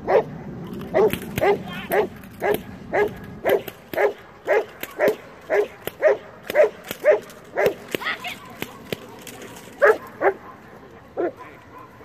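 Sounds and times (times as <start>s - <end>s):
dog barking: 1.0s - 7.8s, 9.8s - 12.0s.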